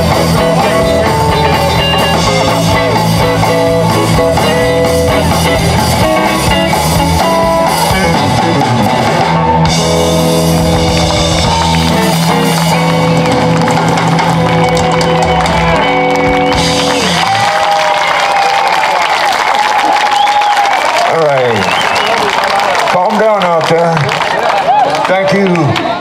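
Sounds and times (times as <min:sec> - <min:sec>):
electric guitar bending notes: 0:00.0 - 0:17.8
bass: 0:00.0 - 0:26.0
drums: 0:00.0 - 0:26.0.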